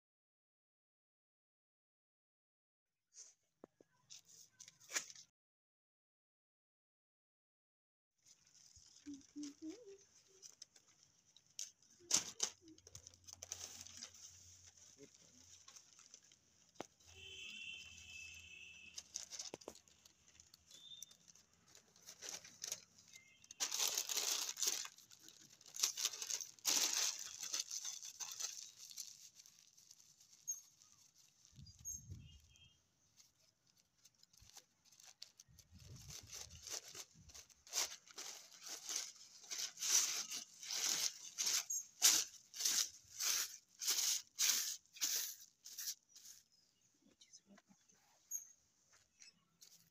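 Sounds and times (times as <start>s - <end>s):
newspaper rustling and crinkling: 8.2s - 17.8s, 18.9s - 46.6s.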